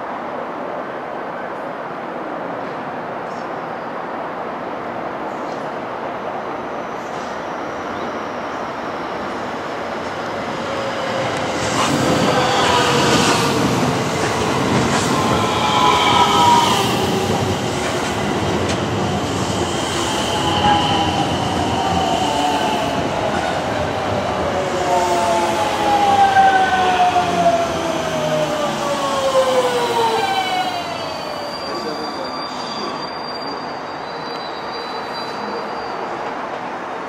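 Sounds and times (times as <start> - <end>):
train wheels rumbling on rails: 8.8 - 32.2
train braking whine: 10.0 - 36.2.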